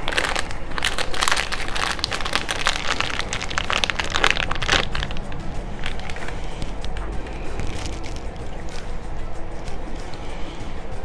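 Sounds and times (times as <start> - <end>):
foil packet tearing and crinkling: 0.0 - 6.4, 7.2 - 8.9.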